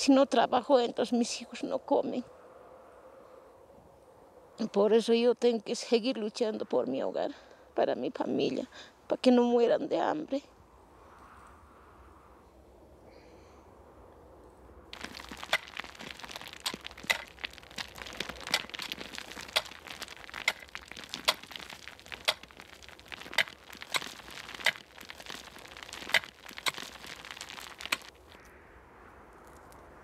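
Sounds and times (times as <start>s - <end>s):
stones crunching and rattling: 14.9s - 28.4s.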